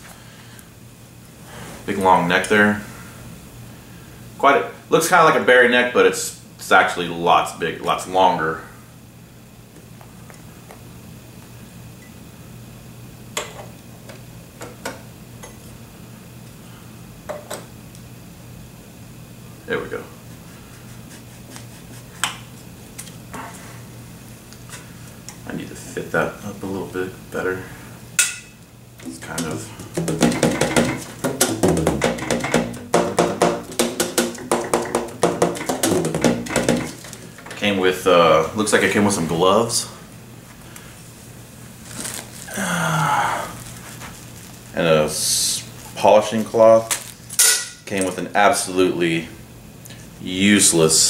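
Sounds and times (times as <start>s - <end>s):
steady low hum: 0.0s - 51.0s
metal clicks and knocks: 29.4s - 37.6s.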